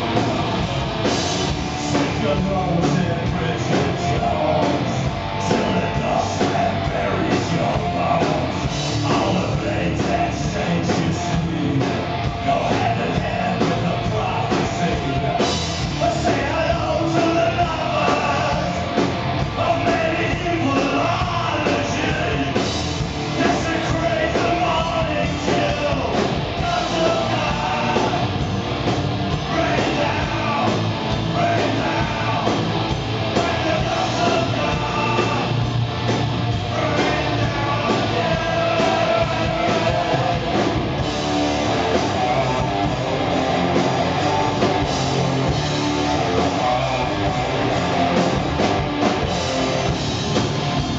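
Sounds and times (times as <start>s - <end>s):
bass guitar: 0.0s - 50.9s
drums: 0.0s - 50.9s
electric guitar: 0.0s - 50.9s
man singing: 1.6s - 18.9s, 19.5s - 22.7s, 23.3s - 28.4s, 29.4s - 35.6s, 36.6s - 40.7s.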